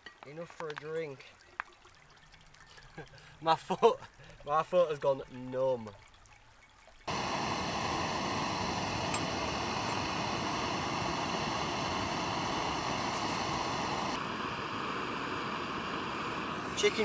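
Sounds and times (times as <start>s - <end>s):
camping stove burner hissing: 7.1s - 17.0s.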